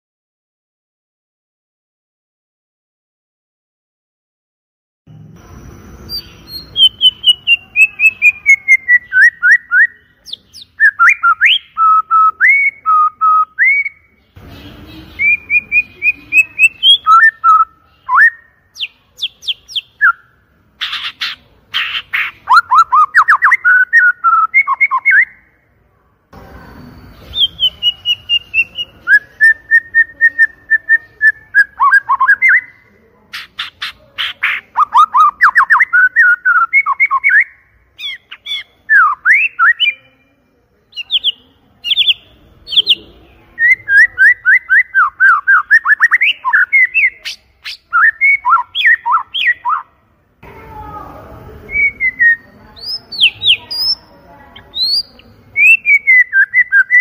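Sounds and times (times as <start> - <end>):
bird singing whistled phrases: 6.0 - 14.2, 14.9 - 25.5, 26.7 - 32.8, 34.4 - 40.3, 40.9 - 49.9, 51.7 - 57.0.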